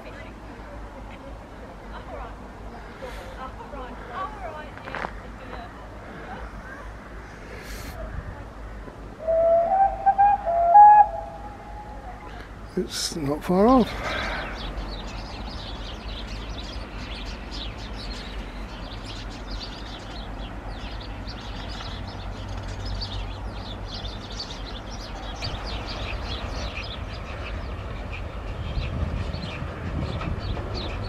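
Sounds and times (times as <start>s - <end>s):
low background rumble: 0.0s - 21.0s
small birds chirping and twittering: 2.8s - 31.0s.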